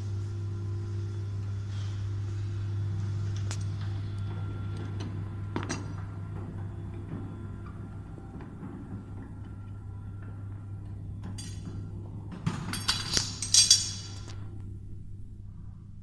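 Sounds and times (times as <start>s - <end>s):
low machine hum: 0.0s - 16.0s
metal tool clinking on metal table: 12.7s - 14.3s.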